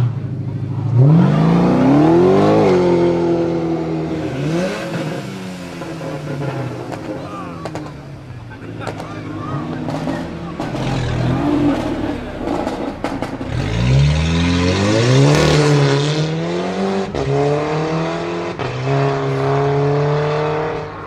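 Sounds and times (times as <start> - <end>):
car engine accelerating hard: 0.0 - 21.0.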